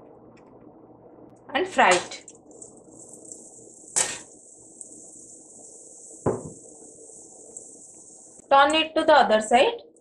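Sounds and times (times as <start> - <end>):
batter frying in hot oil: 1.8 - 9.6.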